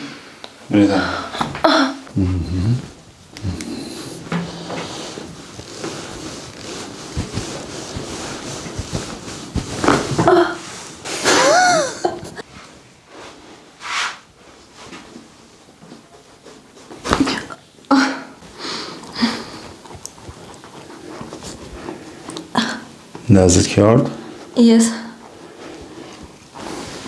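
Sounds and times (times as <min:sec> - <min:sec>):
heavy breathing: 0:00.8 - 0:05.3, 0:18.0 - 0:20.0
woman crying out: 0:11.3 - 0:12.1.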